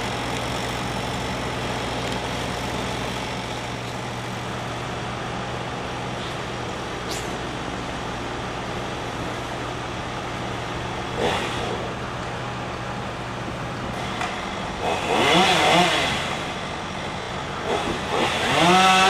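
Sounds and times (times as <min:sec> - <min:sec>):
chainsaw idling and revving: 0:00.0 - 0:04.6, 0:11.0 - 0:12.1, 0:13.9 - 0:19.0.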